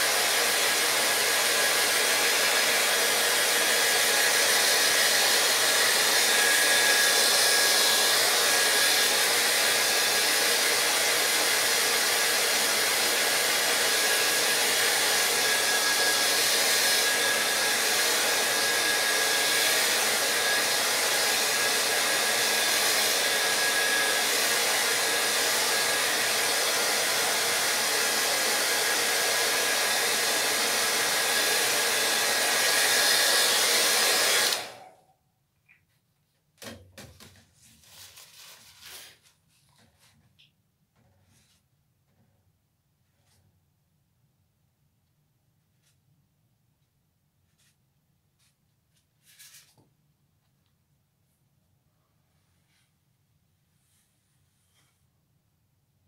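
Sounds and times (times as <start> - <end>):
hair dryer blowing: 0.0 - 35.1.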